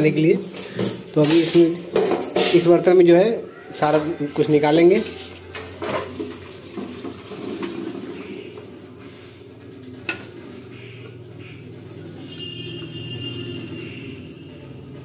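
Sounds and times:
metal pot and colander clinking: 0.4s - 3.0s, 3.8s - 8.2s
water draining: 5.5s - 8.7s.

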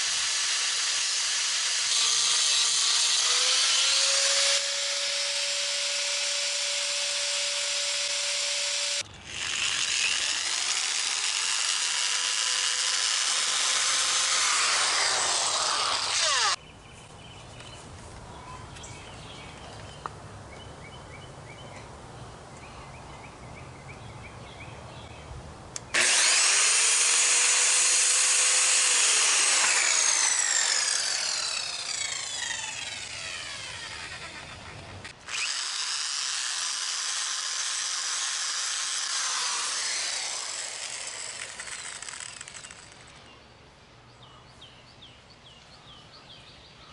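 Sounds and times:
power tool cutting wood: 0.0s - 16.6s, 25.9s - 43.1s.

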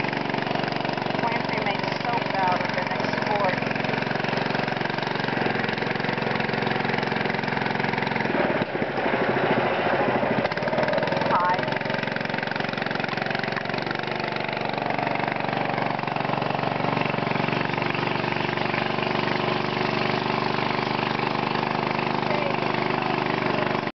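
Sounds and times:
boat motor running: 0.0s - 23.9s.

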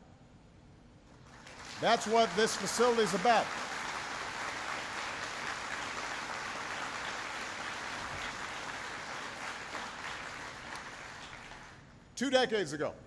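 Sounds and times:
audience applauding: 1.2s - 11.8s.

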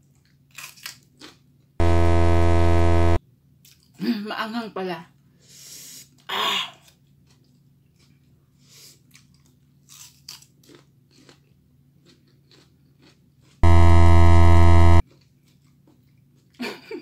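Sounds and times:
chewing raw pepper: 0.2s - 1.5s, 8.9s - 13.6s
low buzzing tone: 1.8s - 3.2s, 13.6s - 15.0s.

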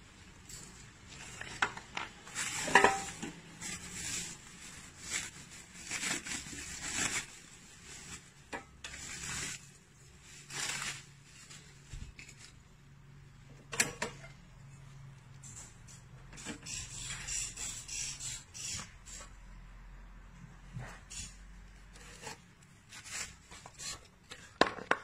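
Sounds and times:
packaging rustling: 1.1s - 12.6s.

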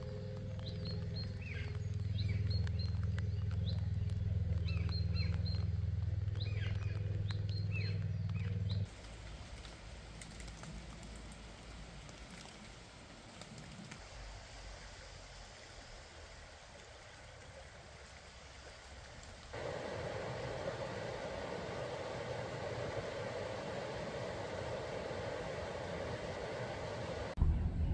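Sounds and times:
small birds chirping: 0.0s - 8.9s
steady low hum: 0.0s - 9.4s, 19.5s - 27.9s
river running over stones: 8.9s - 27.4s.

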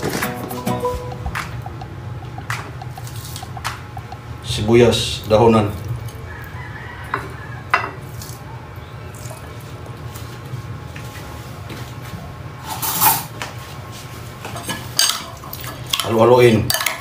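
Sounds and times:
steady low hum: 0.0s - 12.6s
metal spoon clinking on ceramic bowl: 16.7s - 17.0s.

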